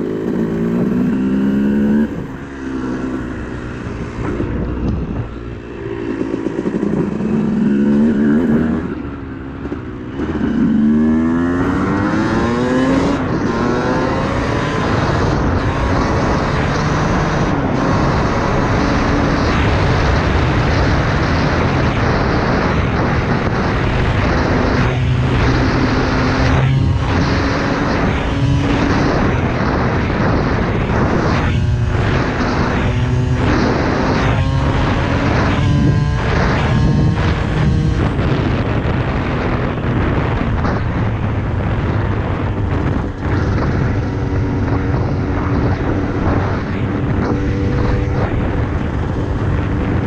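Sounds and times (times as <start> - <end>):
dirt bike engine revving: 9.6 - 40.8.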